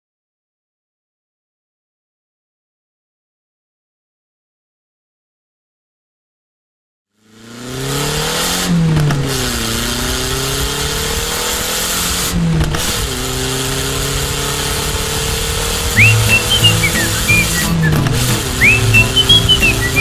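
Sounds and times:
vehicle engine accelerating: 7.2s - 20.0s.

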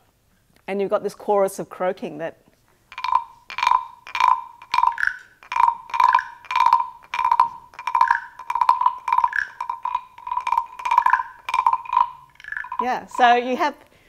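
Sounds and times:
higher-pitched frog block croak: 2.9s - 13.3s
wooden frog guiros croaking: 2.9s - 13.6s.

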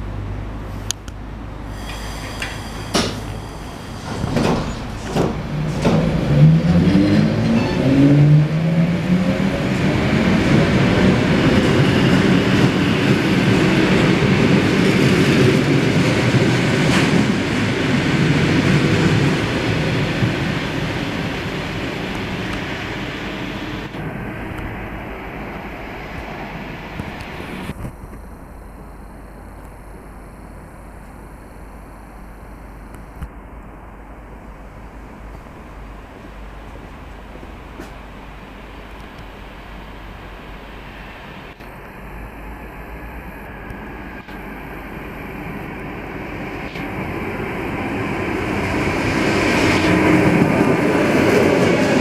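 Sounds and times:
train running noise: 0.7s - 27.8s, 35.0s - 52.0s
train wheels clicking over rail joints: 4.0s - 6.5s.

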